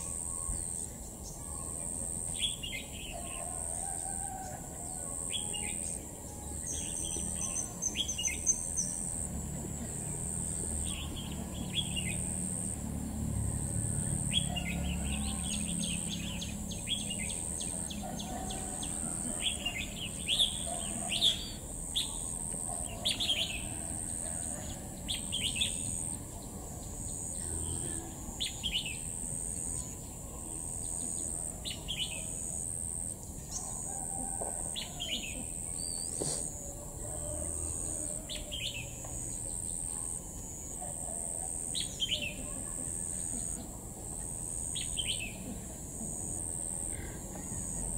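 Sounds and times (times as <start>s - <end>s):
bird chirping: 5.2s - 9.2s.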